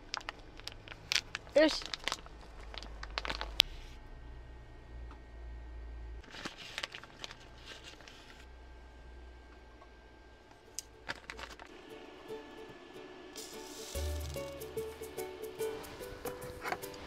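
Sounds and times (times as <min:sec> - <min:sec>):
plastic packet crinkling and tearing: 0:00.0 - 0:03.7, 0:06.2 - 0:08.4, 0:11.0 - 0:11.8.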